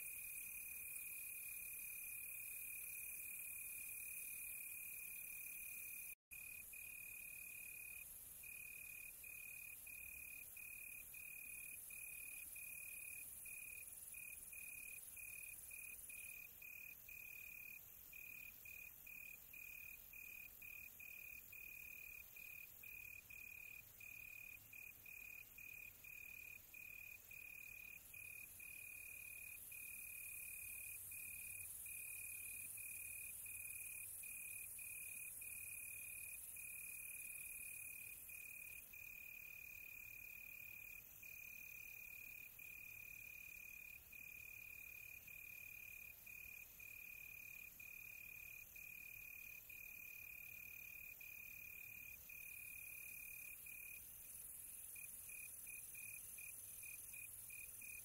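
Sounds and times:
cricket trilling: 52.3s - 58.0s.

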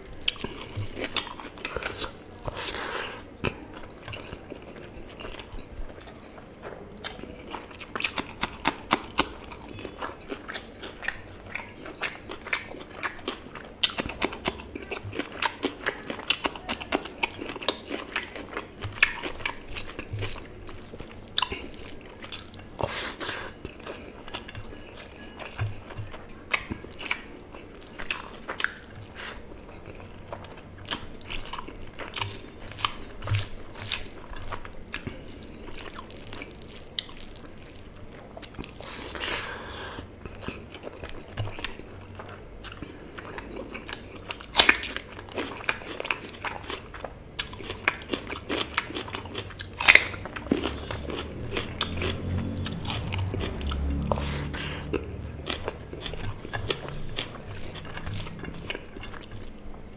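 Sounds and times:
chewing and lip smacks: 0.1s - 6.4s, 7.0s - 39.5s, 40.2s - 59.8s
low rumble: 50.3s - 59.9s.

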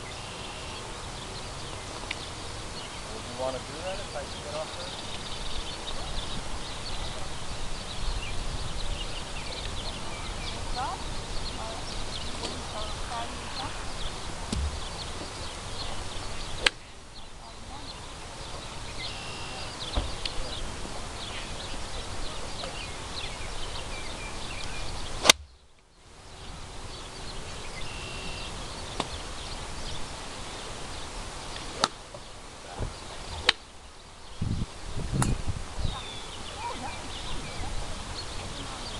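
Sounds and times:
faint chirps: 0.0s - 34.6s
wind rumble on microphone: 5.0s - 25.6s, 34.2s - 38.9s
golf club striking ball: 16.6s - 16.8s, 25.2s - 25.6s, 31.8s - 32.0s, 33.4s - 33.6s.

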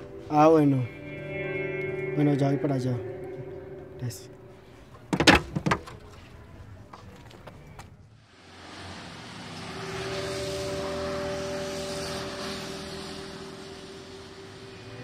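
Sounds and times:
vehicle passing: 8.0s - 15.0s
steady humming tones: 9.4s - 15.0s.

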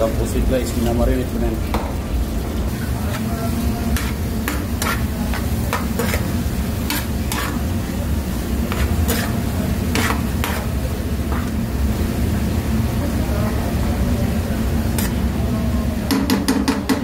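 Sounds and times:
vegetables sizzling: 0.0s - 16.1s
spatula scraping and tossing in wok: 2.7s - 11.6s, 14.8s - 15.3s.

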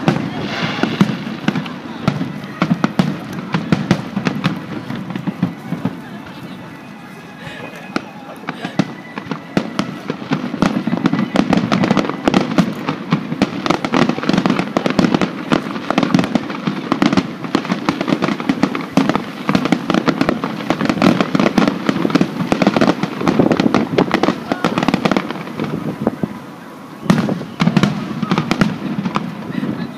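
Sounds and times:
fireworks bursting and crackling: 0.0s - 29.9s.

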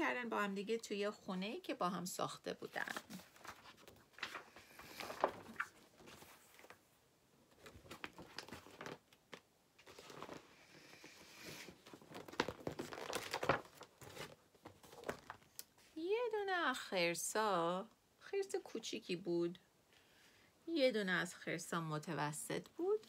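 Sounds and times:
book pages turning: 2.7s - 6.9s, 7.5s - 15.8s.

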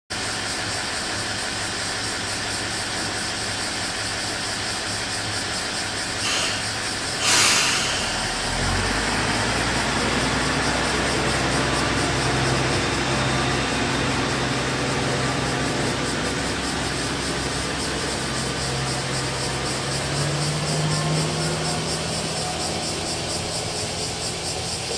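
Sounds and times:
diesel railcar engine: 0.1s - 24.9s
air brake hisses: 6.2s - 8.7s.

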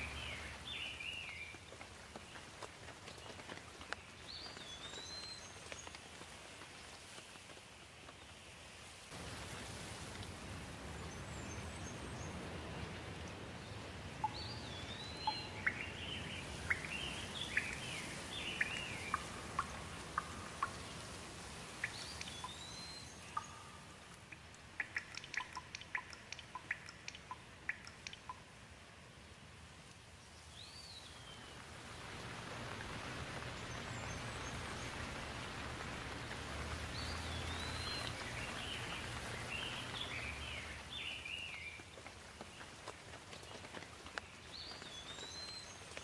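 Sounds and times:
steady rainfall: 0.0s - 46.0s
birds calling: 14.2s - 21.0s, 21.7s - 28.4s, 30.9s - 41.8s
short sharp chirps and ticks: 21.8s - 28.4s.

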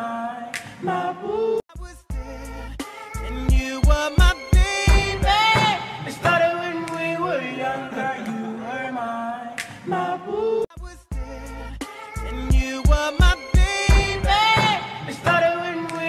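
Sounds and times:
person singing: 0.0s - 16.0s
drum beat: 3.4s - 6.4s, 12.5s - 16.0s.

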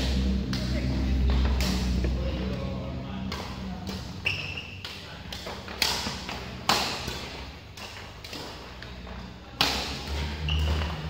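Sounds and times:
rackets hitting shuttlecock: 3.2s - 11.0s
shoe squeak: 4.2s - 4.8s, 10.3s - 11.0s.

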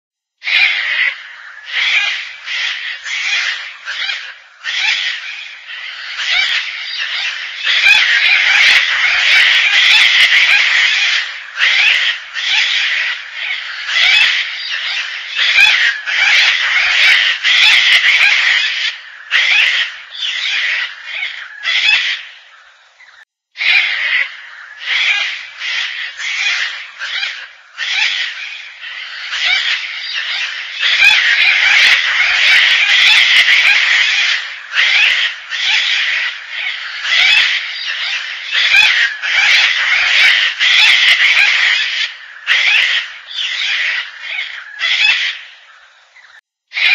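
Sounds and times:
cockatoo harsh rasping calls: 0.4s - 46.9s.

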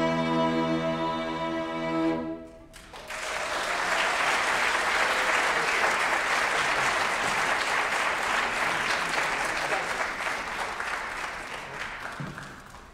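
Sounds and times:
audience applauding: 2.7s - 12.9s.

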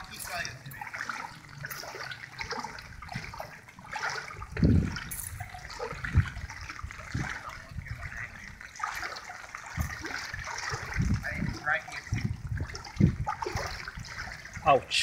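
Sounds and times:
wading through water: 0.0s - 15.0s
dull low thumps: 4.4s - 8.2s, 9.7s - 14.6s.

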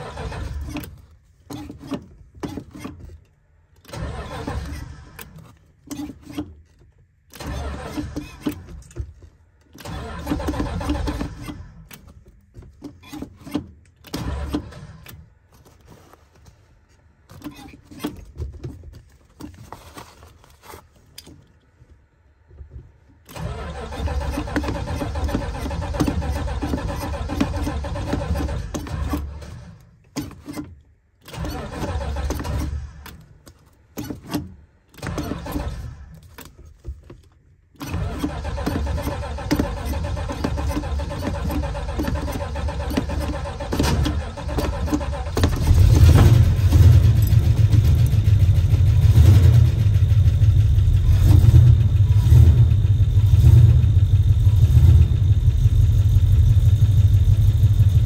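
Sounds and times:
car engine running: 38.2s - 58.0s.

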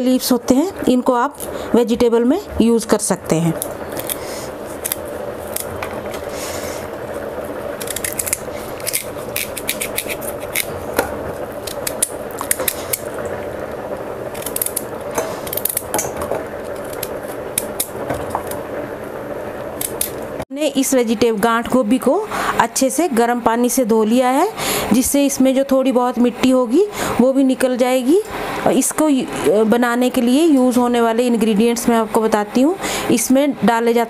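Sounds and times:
steady background hum: 0.0s - 34.0s
knife cutting and scraping vegetable: 3.9s - 5.7s, 7.8s - 10.8s.

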